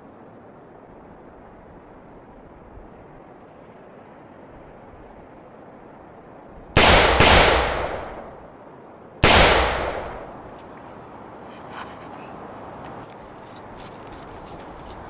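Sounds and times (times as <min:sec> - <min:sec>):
rifle gunshots echoing: 0:06.8 - 0:08.4, 0:09.2 - 0:10.4.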